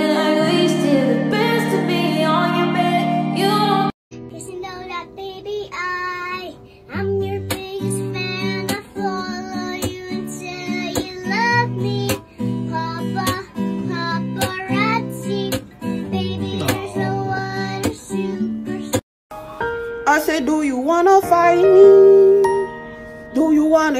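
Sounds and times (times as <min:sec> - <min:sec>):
strummed acoustic guitar: 0:06.9 - 0:19.0
high singing voice: 0:12.8 - 0:19.0, 0:20.3 - 0:23.9.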